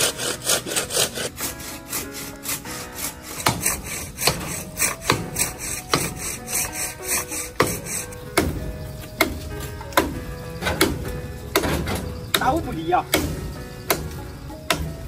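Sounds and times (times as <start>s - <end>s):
hand saw cutting wood: 0.0s - 8.6s.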